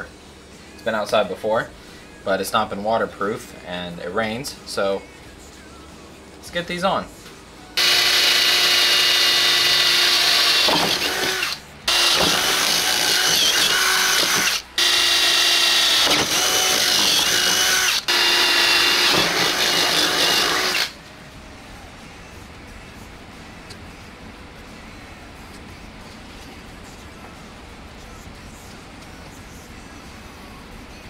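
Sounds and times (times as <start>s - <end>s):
cordless drill boring: 7.8s - 21.0s.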